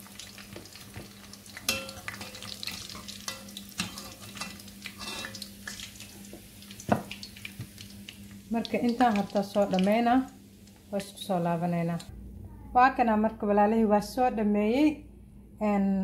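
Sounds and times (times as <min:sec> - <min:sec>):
fish sizzling in hot oil: 0:00.0 - 0:11.4
metal spoon scraping a pot: 0:03.3 - 0:05.4
low hum: 0:08.0 - 0:16.0.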